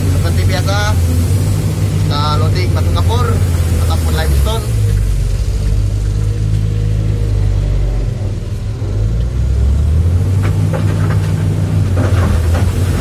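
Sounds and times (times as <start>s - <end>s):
excavator diesel engine under load: 0.0s - 13.0s
rocks clattering into truck bed: 10.4s - 13.0s.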